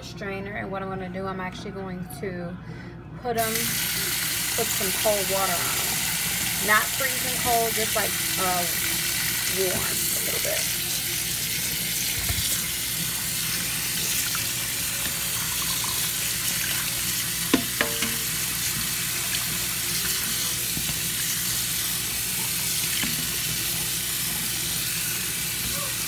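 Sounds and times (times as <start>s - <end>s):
utensil knocking colander: 3.4s - 25.7s
tap water running into sink: 3.4s - 26.0s.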